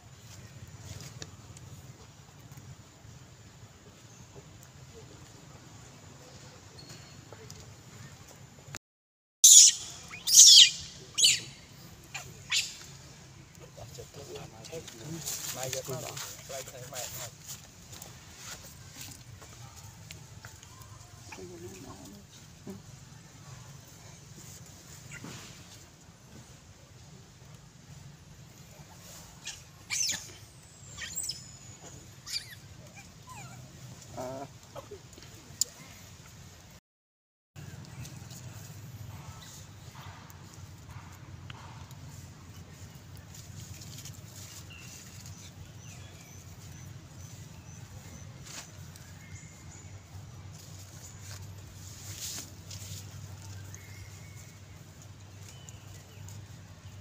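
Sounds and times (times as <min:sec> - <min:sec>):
high-pitched animal calls: 0:09.4 - 0:12.8, 0:29.4 - 0:35.0
macaques squealing: 0:09.4 - 0:12.9, 0:29.4 - 0:35.0.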